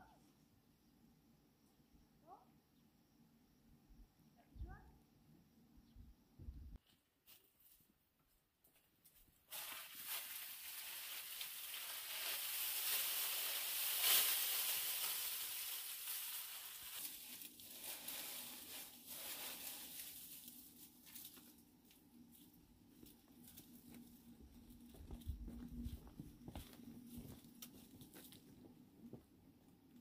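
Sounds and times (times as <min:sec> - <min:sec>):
dry leaves rustling: 0:09.4 - 0:28.4.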